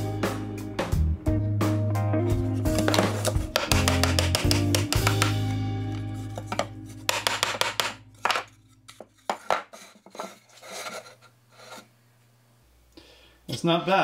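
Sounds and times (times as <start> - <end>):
background music: 0.0 - 9.0
wood knocking and scraping on wood: 2.6 - 11.9.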